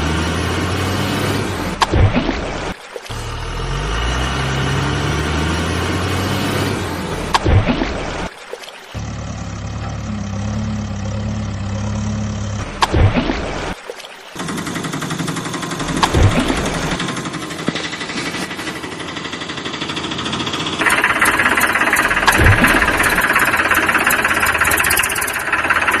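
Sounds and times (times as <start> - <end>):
tractor engine knocking rattle: 9.0 - 13.3, 14.4 - 26.0.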